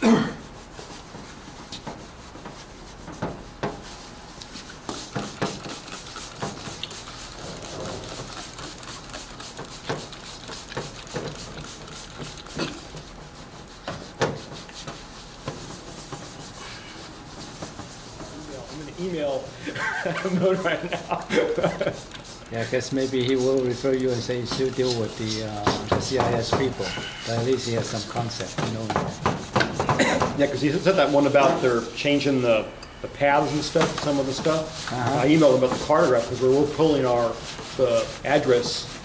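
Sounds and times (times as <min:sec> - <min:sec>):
cloth rags scrubbing a sign: 0:00.4 - 0:39.0
sharp taps and knocks: 0:04.9 - 0:07.0, 0:24.4 - 0:30.4.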